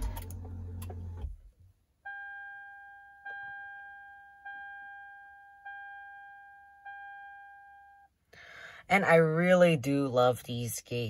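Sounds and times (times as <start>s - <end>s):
car warning chime: 2.0s - 8.1s.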